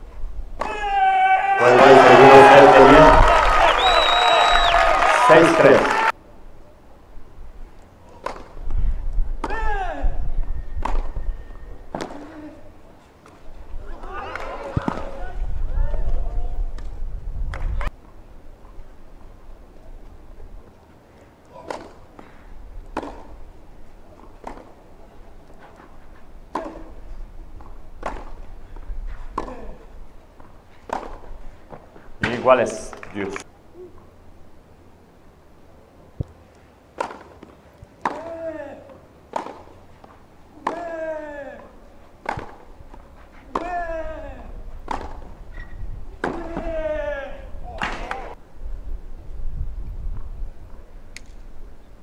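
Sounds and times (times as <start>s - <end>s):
tennis racket hitting ball: 23.0s - 23.3s, 24.4s - 24.8s, 26.5s - 27.0s, 27.6s - 28.4s, 30.9s - 32.4s, 37.0s - 38.5s, 39.3s - 39.8s, 40.6s - 43.9s, 44.8s - 45.3s, 46.2s - 46.8s.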